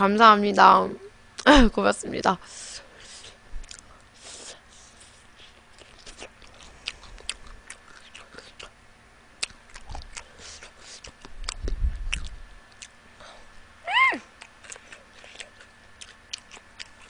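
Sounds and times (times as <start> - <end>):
chewing crunchy fried food: 3.0 - 8.8, 9.4 - 13.3, 14.3 - 17.0.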